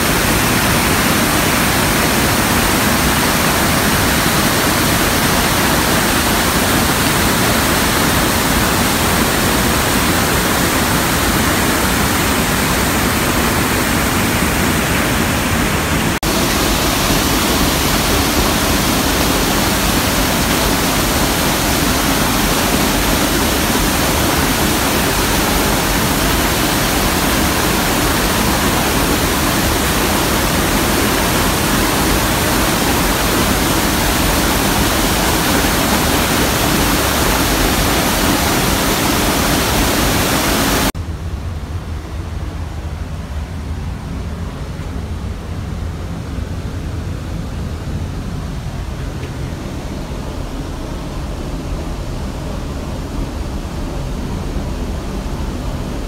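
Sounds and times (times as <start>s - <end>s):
waterfall rushing: 0.0s - 41.0s.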